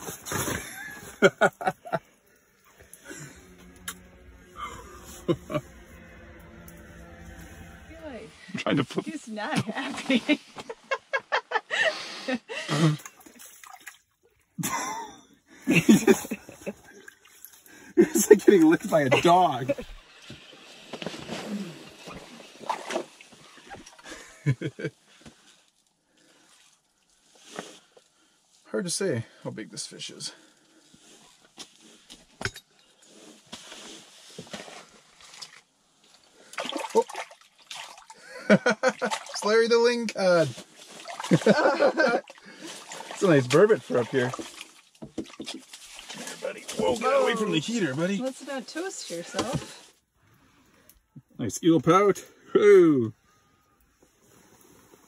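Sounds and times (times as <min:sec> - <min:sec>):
water splashing: 0:12.8 - 0:14.5, 0:15.8 - 0:24.3, 0:34.7 - 0:48.0.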